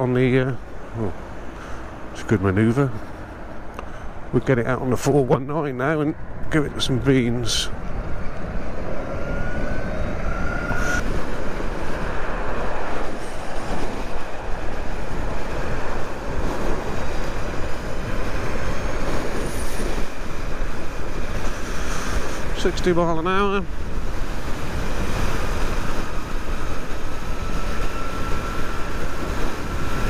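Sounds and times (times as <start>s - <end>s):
tyre and road noise: 0.0s - 30.0s
wind rush on microphone: 6.1s - 30.0s
faint electric motor whine: 25.8s - 30.0s.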